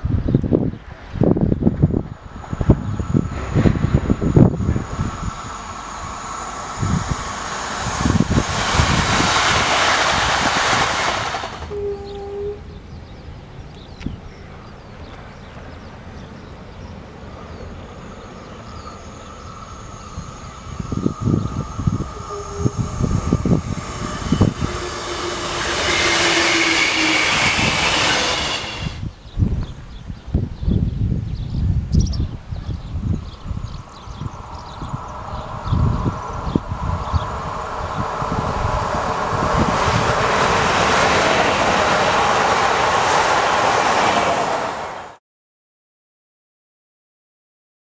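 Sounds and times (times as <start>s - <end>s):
train passing at speed: 0.0s - 29.4s, 32.2s - 45.2s
wind buffeting microphone: 0.0s - 44.7s.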